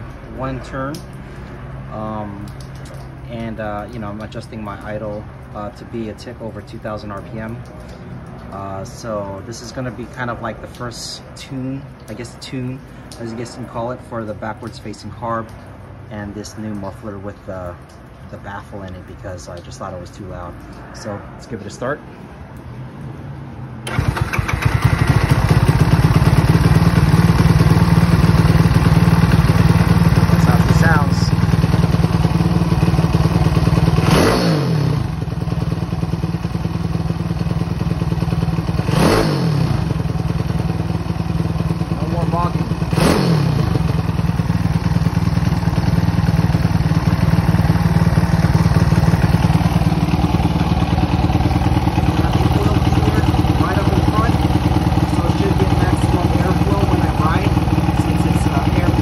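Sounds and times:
motorcycle engine starting and idling: 0:23.8 - 0:59.0.

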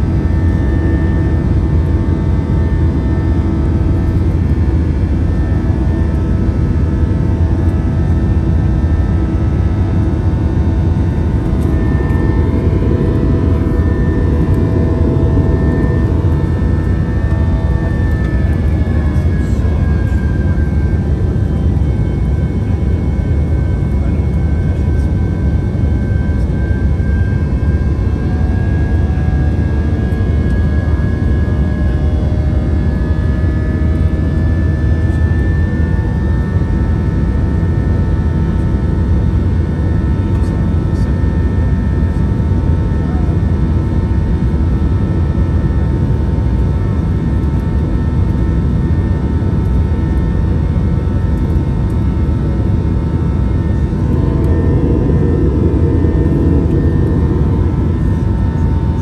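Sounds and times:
whining engine tones: 0:05.0 - 0:34.0, 0:50.1 - 0:59.0
low engine rumble: 0:09.0 - 0:31.1, 0:49.7 - 0:59.0.

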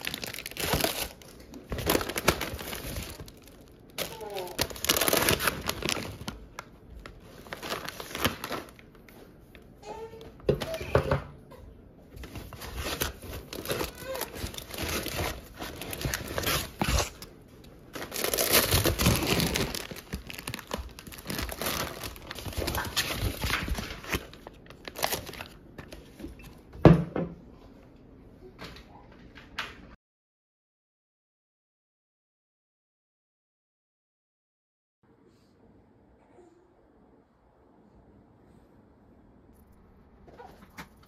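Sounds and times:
plastic packaging crinkling: 0:00.0 - 0:09.3, 0:12.2 - 0:26.3.

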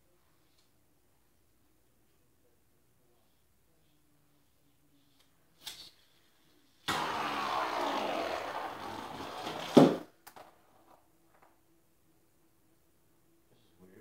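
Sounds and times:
spinning top ripped from launcher: 0:06.8 - 0:10.1
spinning top whirring on floor: 0:06.8 - 0:11.5.

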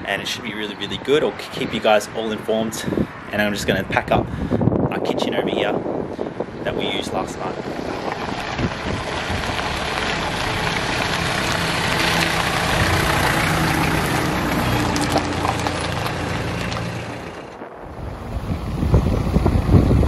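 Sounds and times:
motor vehicle running: 0:06.0 - 0:20.0.

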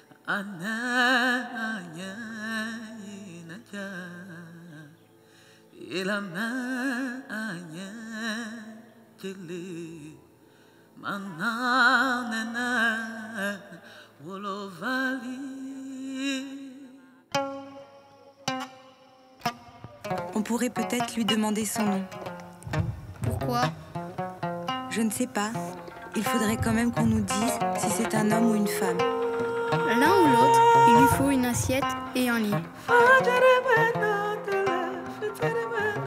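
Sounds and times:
person singing with vibrato: 0:24.9 - 0:36.0.

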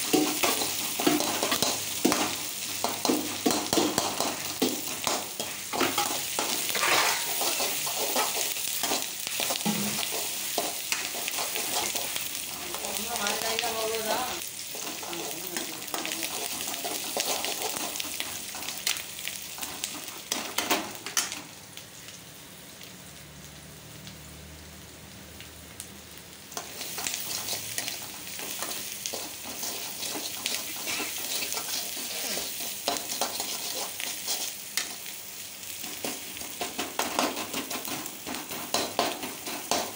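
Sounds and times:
steel spoon scraping a pan: 0:00.0 - 0:12.8, 0:14.7 - 0:18.7, 0:26.6 - 0:35.0
onions sizzling in hot oil: 0:00.0 - 0:39.9.

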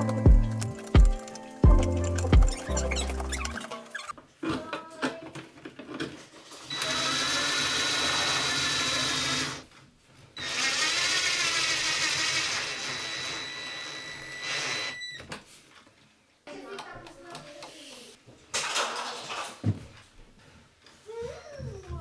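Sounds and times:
cordless drill driving screws: 0:06.7 - 0:09.6, 0:10.4 - 0:15.2.

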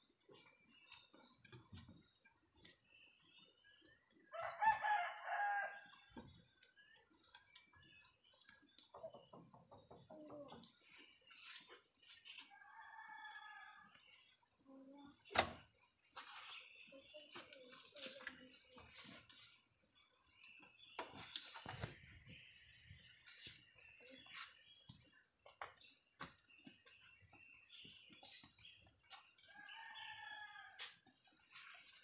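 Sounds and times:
insects droning: 0:00.0 - 0:32.0
rooster crowing: 0:04.3 - 0:05.9, 0:29.5 - 0:30.9.

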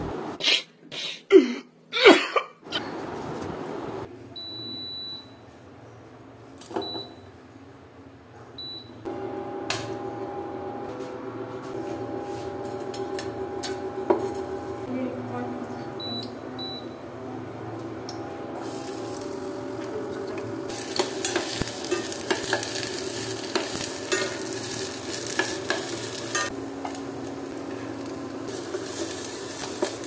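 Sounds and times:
cooktop fan humming: 0:00.0 - 0:00.4, 0:02.7 - 0:30.0
cooktop beeping: 0:04.3 - 0:05.4, 0:06.6 - 0:07.4, 0:08.6 - 0:11.4, 0:15.8 - 0:30.0.

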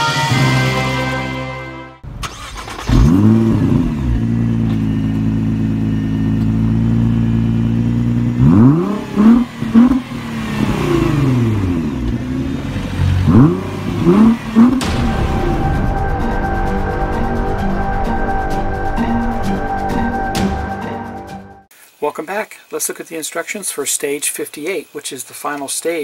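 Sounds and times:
car engine idling: 0:02.0 - 0:20.8
car engine revving: 0:02.0 - 0:20.8
car engine starting: 0:02.0 - 0:21.6.

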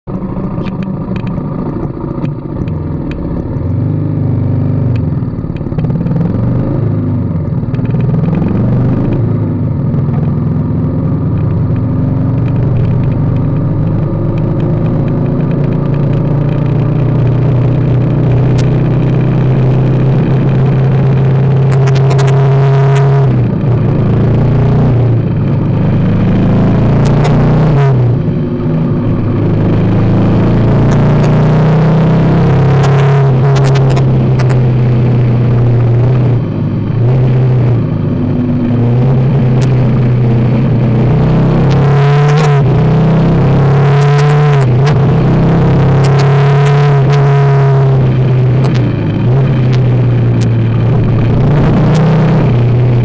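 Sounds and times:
motorcycle engine revving: 0:00.1 - 0:53.0
sharp ticks: 0:21.6 - 0:23.1, 0:32.8 - 0:34.7, 0:46.0 - 0:47.3, 0:48.6 - 0:49.0.

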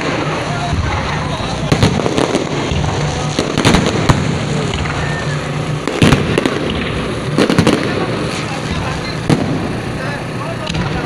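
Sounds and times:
fireworks bangs: 0:00.0 - 0:11.0
fireworks crackling: 0:00.0 - 0:11.0.

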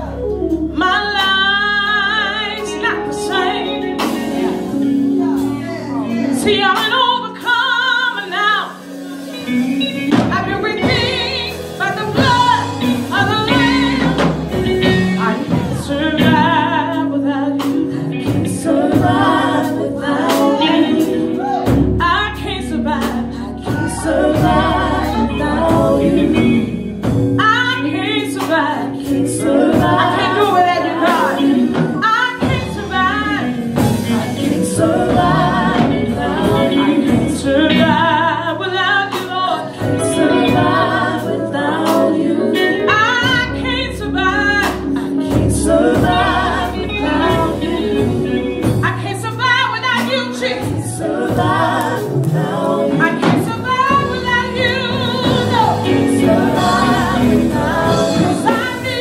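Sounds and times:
woman singing lead: 0:00.0 - 0:59.0
backing singers: 0:08.2 - 0:59.0
band with drums: 0:08.8 - 0:16.6, 0:33.5 - 0:38.0, 0:50.0 - 0:59.0.

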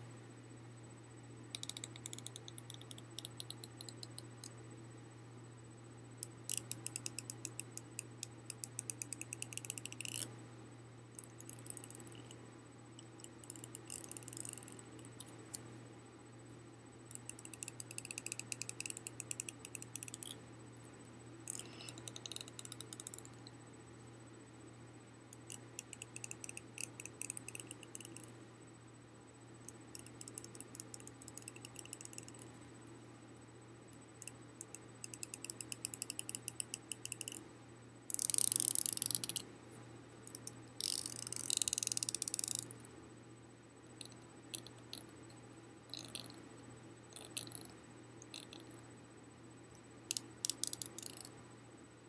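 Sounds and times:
finger clicking along comb teeth: 0:01.5 - 0:04.5, 0:06.5 - 0:10.3, 0:11.2 - 0:12.4, 0:13.0 - 0:15.6, 0:17.1 - 0:20.4, 0:21.5 - 0:23.5, 0:25.4 - 0:28.3, 0:29.7 - 0:32.5, 0:34.2 - 0:37.4, 0:38.1 - 0:39.4, 0:40.3 - 0:42.7, 0:45.9 - 0:46.4, 0:50.1 - 0:51.3.

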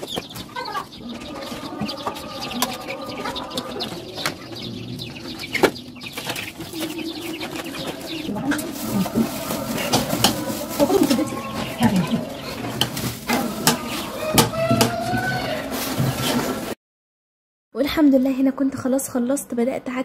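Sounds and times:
small birds chirping: 0:00.0 - 0:14.8
pigeons cooing: 0:00.0 - 0:16.7.

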